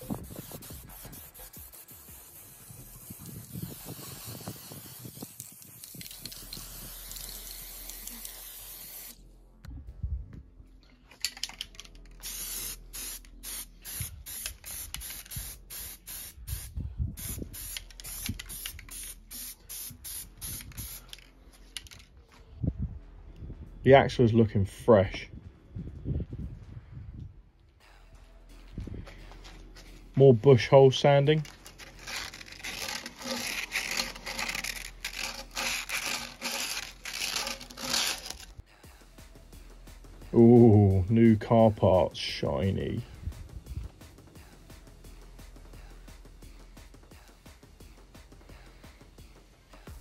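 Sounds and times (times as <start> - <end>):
sandpaper rubbing metal: 0.0 - 9.1, 31.2 - 38.6
aerosol can spraying: 0.0 - 9.2, 12.2 - 22.0, 31.4 - 38.6.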